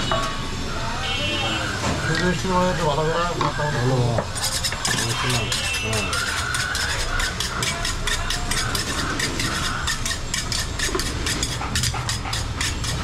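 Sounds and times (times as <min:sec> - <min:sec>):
cleavers chopping meat on wood: 0:04.8 - 0:13.0.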